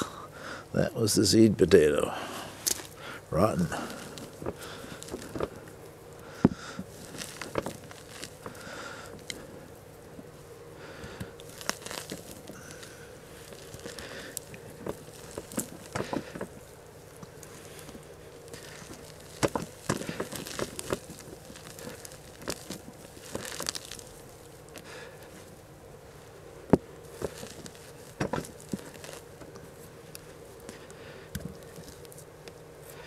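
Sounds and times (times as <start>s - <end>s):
hands raking through soil: 1.2s - 33.0s.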